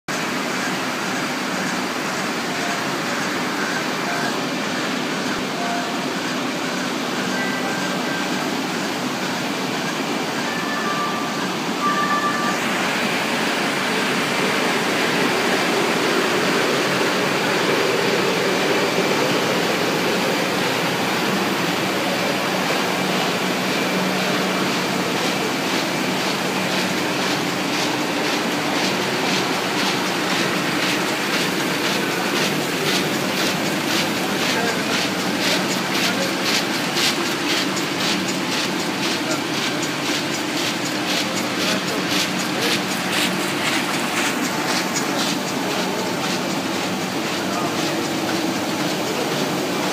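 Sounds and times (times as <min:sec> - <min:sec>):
short electronic beeps: 0:10.4 - 0:12.6
printing press clattering: 0:12.6 - 0:49.9.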